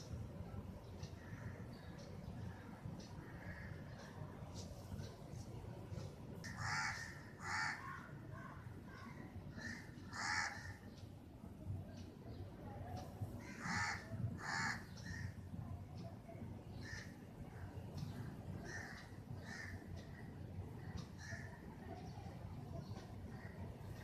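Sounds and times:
steady low hum: 0.0s - 24.0s
harsh bird calls: 13.4s - 15.4s.

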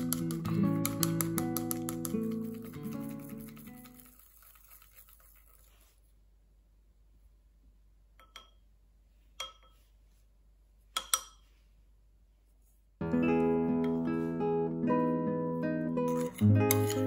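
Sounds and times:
acoustic guitar music: 0.0s - 3.8s, 13.0s - 17.0s.

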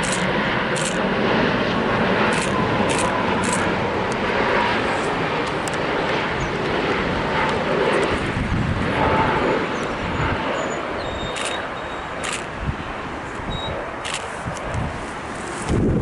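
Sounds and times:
jet engines on approach: 0.0s - 16.0s.

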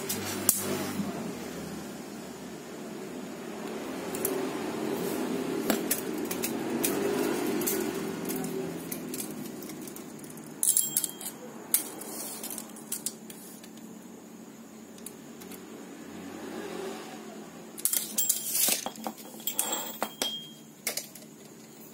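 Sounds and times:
low steady background hum: 1.0s - 16.3s, 17.2s - 21.9s
metal tools clinking: 5.9s - 13.2s, 17.8s - 21.3s.

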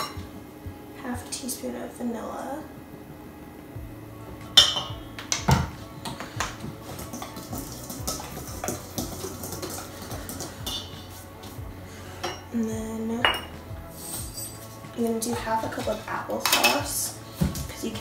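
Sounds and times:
utensils clinking in metal bowl: 6.8s - 11.2s, 12.2s - 12.5s, 13.2s - 18.0s.

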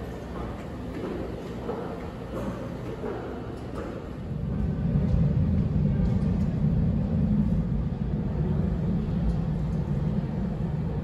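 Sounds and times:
low rumble: 4.3s - 11.0s.

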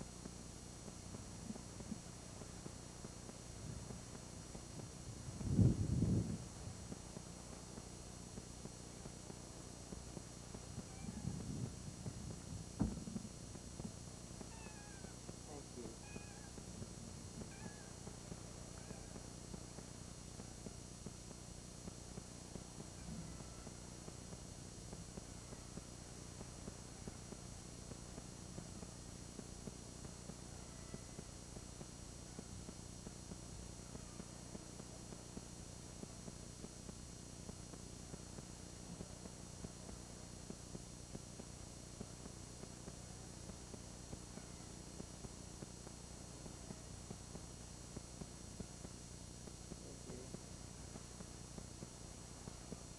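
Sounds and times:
camcorder hum and hiss: 0.0s - 52.9s
faint high whine: 0.0s - 52.9s
faint little ticks: 13.1s - 52.9s.

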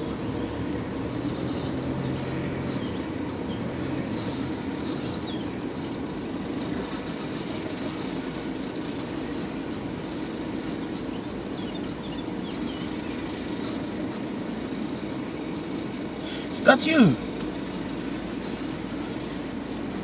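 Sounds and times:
car engine and road rumble: 0.0s - 20.0s
faint high chirps: 12.7s - 15.2s.

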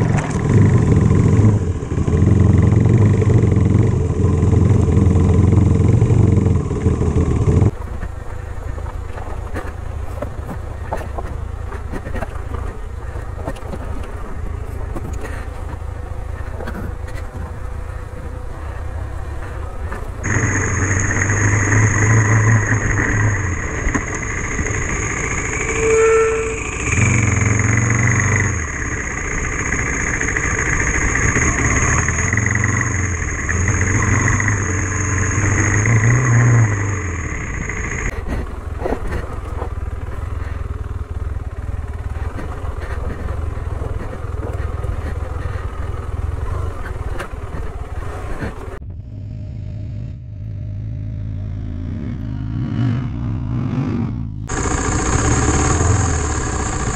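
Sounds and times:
steady high whine: 0.0s - 7.8s, 17.4s - 47.5s, 54.4s - 56.9s
motorcycle engine revving: 0.0s - 8.2s, 11.2s - 56.9s.

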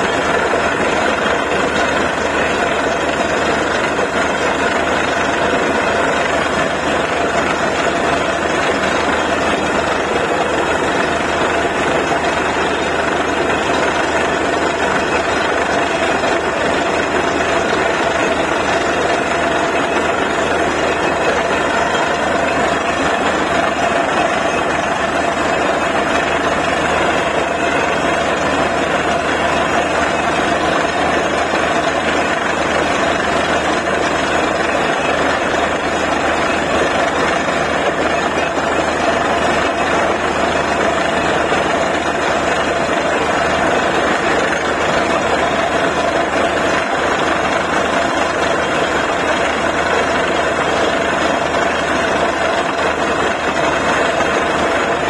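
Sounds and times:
drilling rig running: 0.0s - 55.0s.

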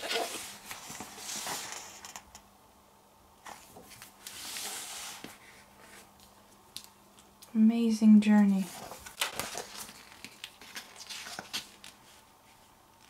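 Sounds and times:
paper swishing: 4.0s - 6.0s.

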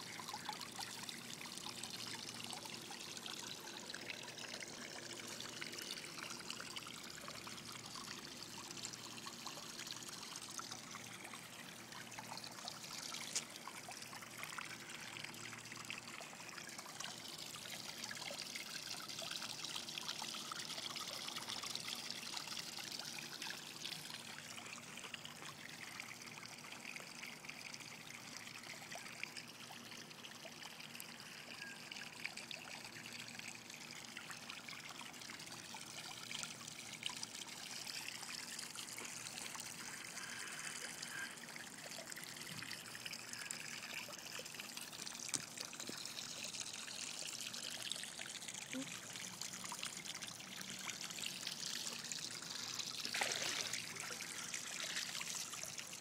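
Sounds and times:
water trickling and lapping: 0.0s - 56.0s.

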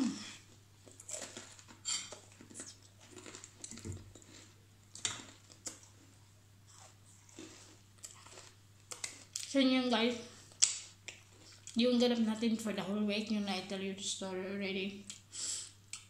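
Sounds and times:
faint low hum: 0.0s - 16.0s
crackers being chewed: 0.8s - 9.6s.

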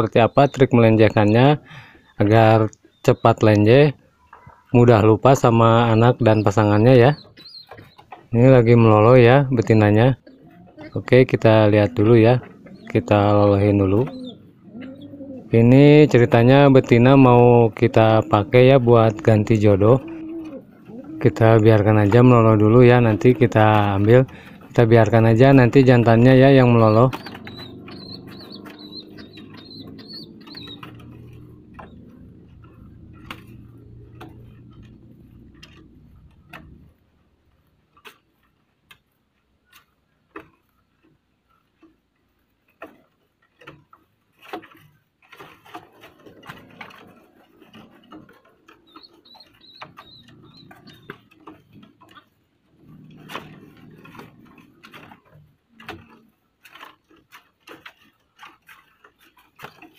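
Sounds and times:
faint high squeaking: 0.0s - 37.0s
wing flutters: 4.6s - 37.0s, 43.6s - 59.9s.

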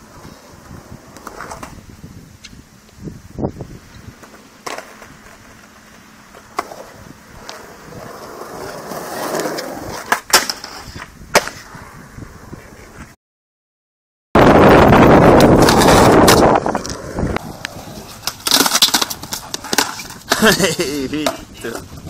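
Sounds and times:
skateboard wheels rolling on concrete: 0.0s - 13.2s, 14.4s - 22.0s
skateboard clacks: 17.6s - 22.0s.

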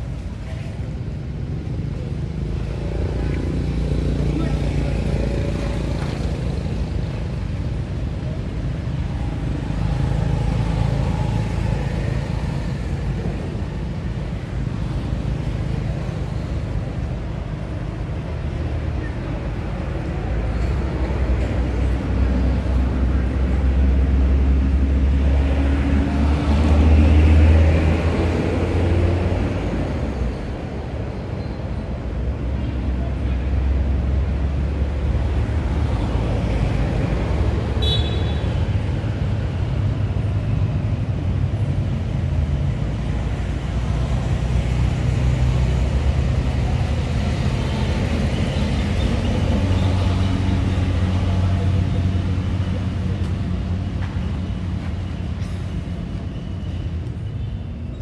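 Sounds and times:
low rumble of traffic: 0.0s - 58.0s
vehicle passing by: 22.5s - 30.2s.

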